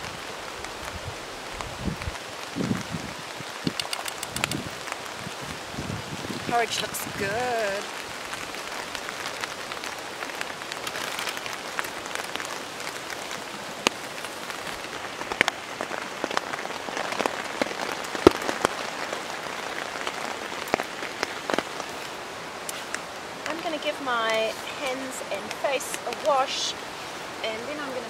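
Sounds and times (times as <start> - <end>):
rain falling on a tarp: 0.0 - 28.0
sharp clicks: 3.6 - 4.7.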